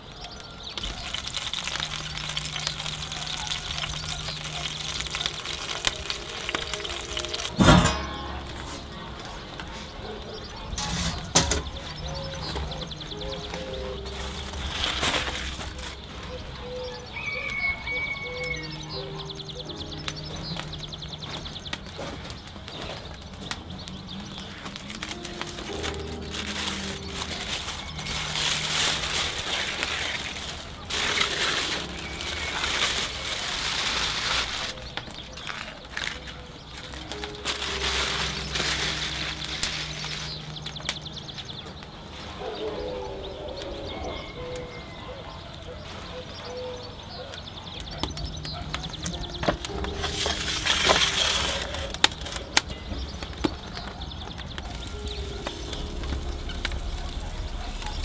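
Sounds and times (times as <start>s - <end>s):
aluminium foil crinkling: 0.0s - 58.0s
metal pan scraping stone floor: 3.9s - 9.6s, 10.7s - 12.7s.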